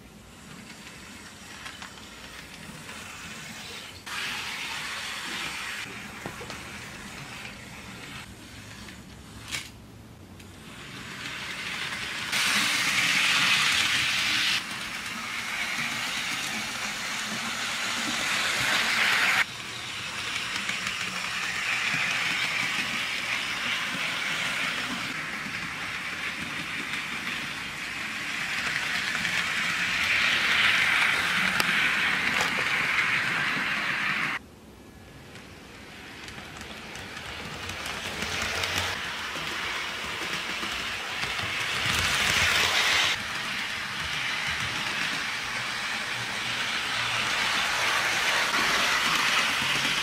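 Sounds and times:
wheels on rails: 0.0s - 9.8s, 10.4s - 34.4s, 35.1s - 50.0s
model train motor whirring: 10.4s - 34.4s, 36.1s - 50.0s.

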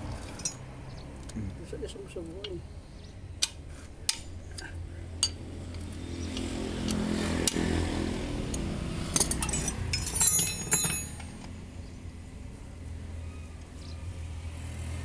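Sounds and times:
metal engine parts clinking: 0.1s - 1.3s, 3.4s - 5.4s, 8.5s - 11.5s.

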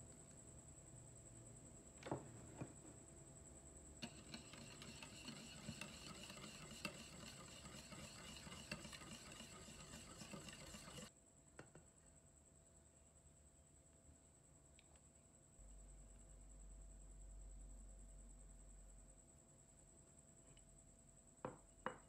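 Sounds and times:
whisk scraping glass bowl: 4.0s - 11.1s.

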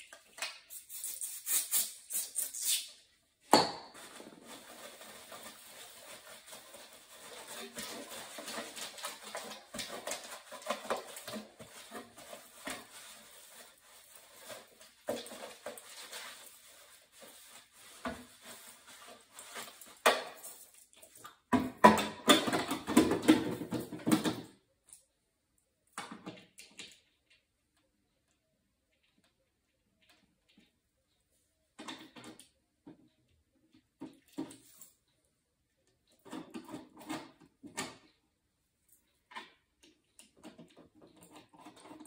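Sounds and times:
scraping and handling: 3.9s - 21.3s.

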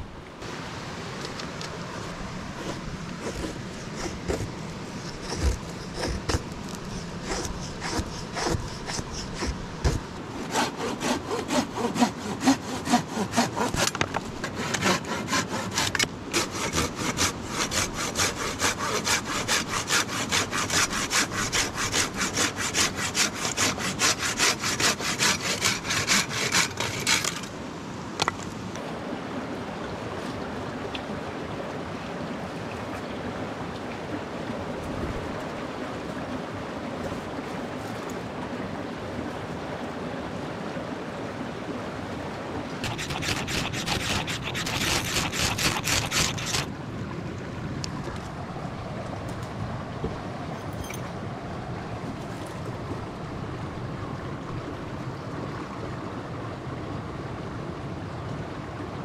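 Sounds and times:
knife shaving wooden stick: 2.6s - 27.4s, 42.8s - 46.7s
hand saw cutting log: 2.6s - 27.5s, 42.8s - 46.7s.

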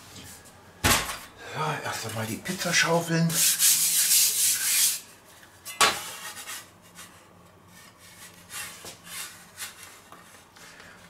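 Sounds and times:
pizza peel scraping wooden board: 6.0s - 10.0s.

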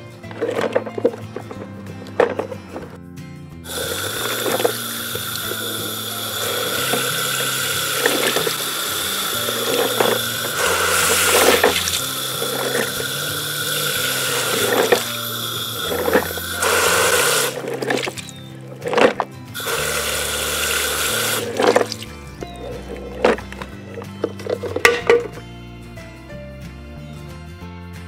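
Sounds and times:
water pouring over plastic toy: 3.7s - 22.2s
water splashing into puddle: 3.7s - 22.2s.

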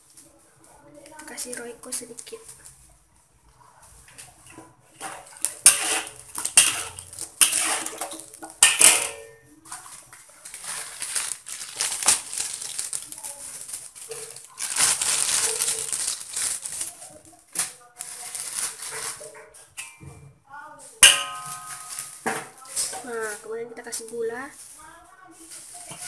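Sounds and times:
spatula scraping metal wok: 4.8s - 9.4s
sharp metal clanks: 5.6s - 7.9s, 8.6s - 9.4s, 21.0s - 22.2s.

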